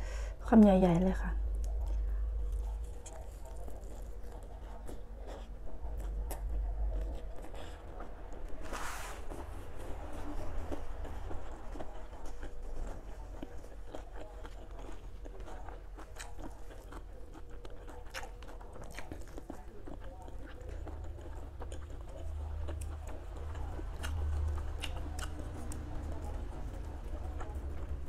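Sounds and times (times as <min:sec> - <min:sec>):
close chewing with wet clicks: 0:01.5 - 0:08.6, 0:10.0 - 0:28.0.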